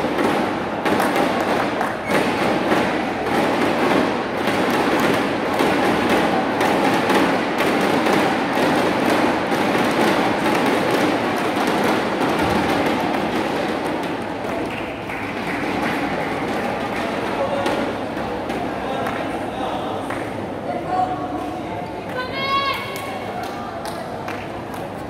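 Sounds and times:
people clapping: 0.0s - 20.6s, 21.3s - 25.0s
crowd din: 0.0s - 25.0s.

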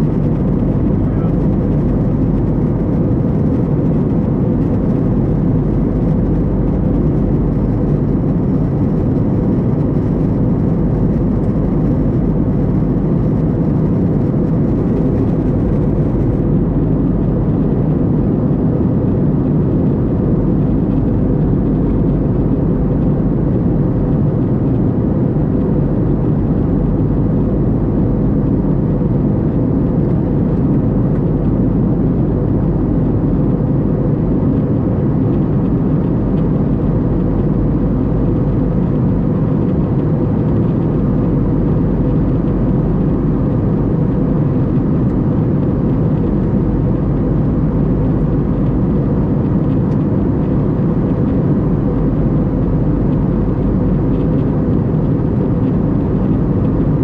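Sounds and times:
aircraft cabin engine rumble: 0.0s - 57.0s.

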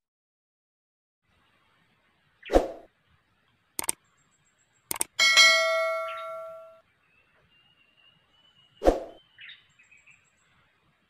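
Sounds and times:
bright bell ding: 5.2s - 6.8s.

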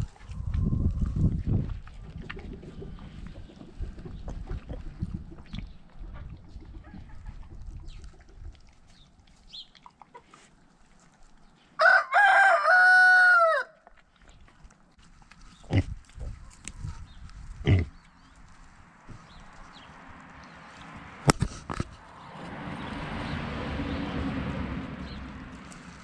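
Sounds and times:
rooster crowing: 11.8s - 13.8s.

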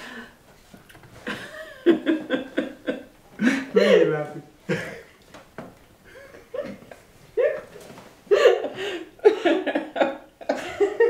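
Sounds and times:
woman and man laughing: 1.3s - 5.1s, 8.3s - 11.0s.

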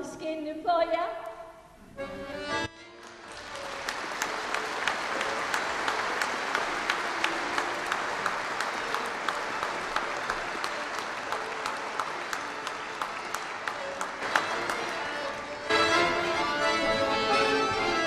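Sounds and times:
accordion: 1.9s - 18.0s
fiddle: 2.0s - 18.0s
audience applause: 2.9s - 16.5s.

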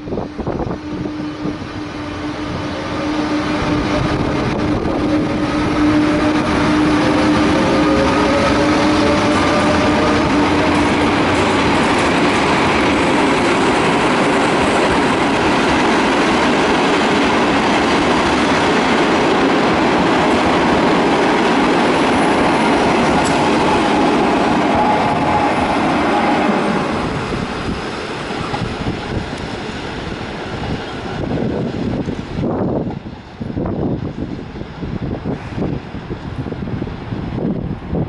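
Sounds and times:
train wheels clattering over rails: 3.8s - 32.2s.

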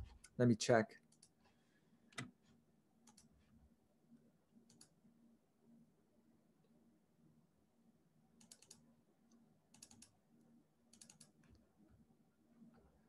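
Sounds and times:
faint low hum: 0.0s - 13.0s
typing on computer keyboard: 8.4s - 8.8s, 9.7s - 10.1s, 10.9s - 11.5s.

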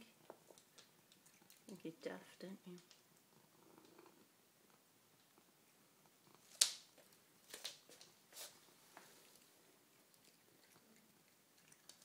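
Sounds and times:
cat crunching food pellets: 0.2s - 2.0s, 9.2s - 12.0s.

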